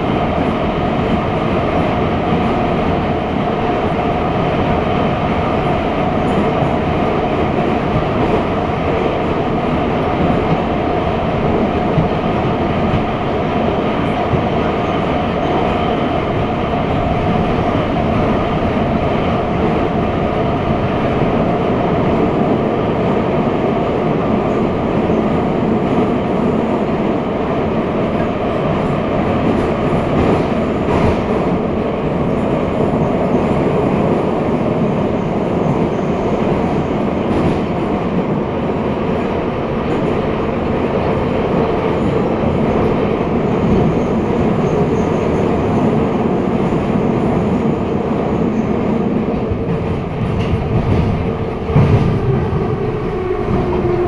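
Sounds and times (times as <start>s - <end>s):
metro train rumbling in tunnel: 0.0s - 54.0s.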